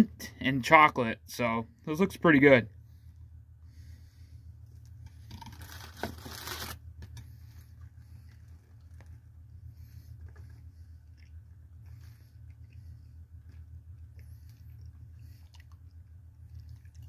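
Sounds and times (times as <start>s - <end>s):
steady low hum: 0.0s - 17.0s
man chewing: 4.7s - 17.0s.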